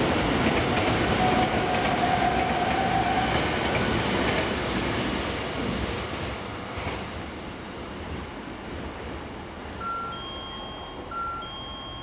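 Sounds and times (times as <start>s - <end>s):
train rumbling: 0.0s - 12.0s
two-note ding-dong chime: 9.8s - 12.0s.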